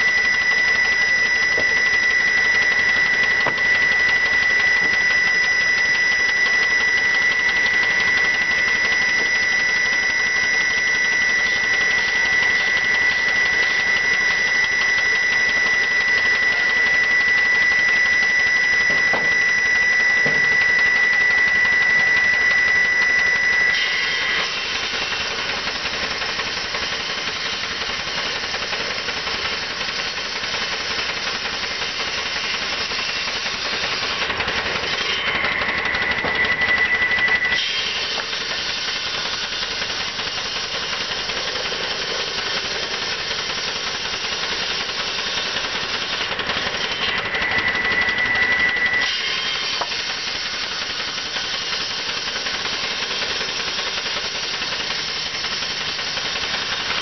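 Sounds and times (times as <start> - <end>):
high whine: 0.0 - 26.7, 31.7 - 50.4
steam hissing: 0.0 - 57.0.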